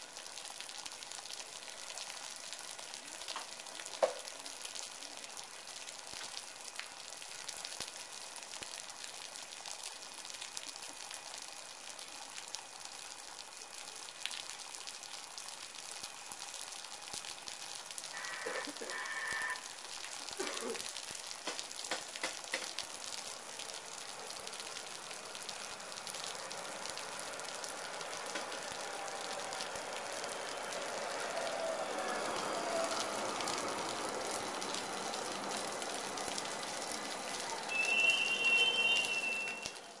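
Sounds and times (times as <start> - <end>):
steady rain: 0.0 - 40.0
train wheel noise: 28.1 - 39.9
high-pitched tone: 37.7 - 39.8.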